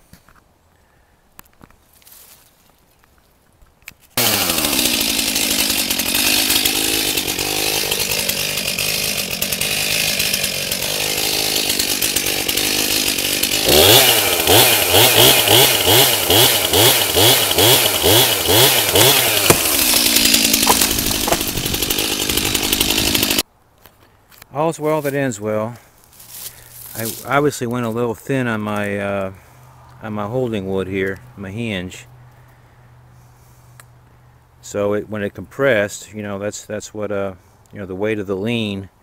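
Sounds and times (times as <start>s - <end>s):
chainsaw cutting wood: 4.2s - 23.4s.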